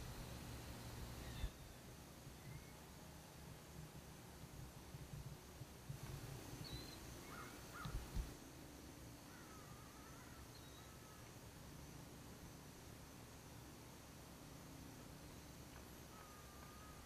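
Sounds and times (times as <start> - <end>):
short wavering calls: 0.0 - 1.8, 6.6 - 8.3
faint bird chirps: 0.0 - 3.0, 6.4 - 8.4, 9.2 - 11.4, 15.2 - 17.0
faint high-pitched drone: 0.0 - 3.4, 6.1 - 17.0.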